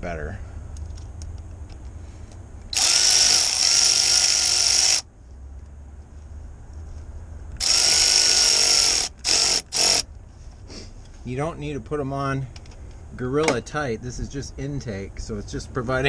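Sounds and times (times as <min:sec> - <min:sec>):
cordless power ratchet running: 0:02.7 - 0:05.1, 0:07.6 - 0:10.1.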